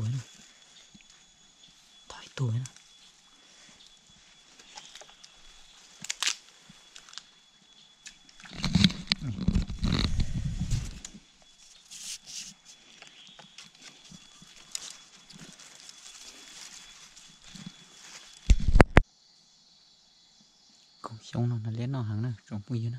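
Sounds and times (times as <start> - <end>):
faint high whine: 0.0 - 22.9
rustling and snapping in brush: 5.9 - 7.3.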